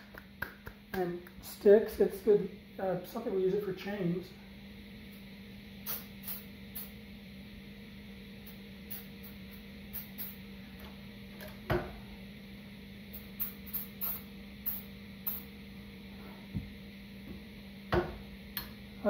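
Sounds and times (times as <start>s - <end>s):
aerosol spray spritzes: 5.8s - 7.0s, 8.9s - 10.4s, 13.1s - 15.5s.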